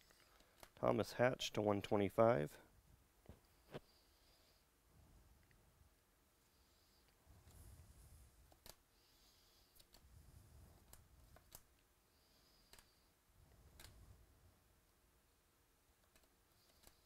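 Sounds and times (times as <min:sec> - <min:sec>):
cards sliding against cards: 0:16.1 - 0:17.0.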